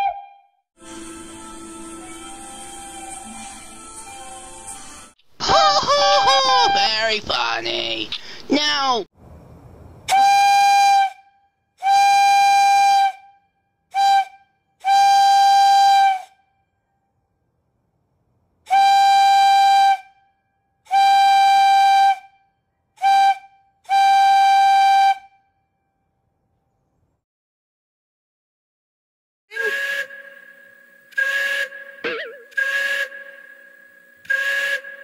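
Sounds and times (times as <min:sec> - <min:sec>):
high-pitched whistle blasts: 0:00.0 - 0:01.2, 0:02.0 - 0:04.6, 0:10.1 - 0:13.4, 0:29.5 - 0:35.0.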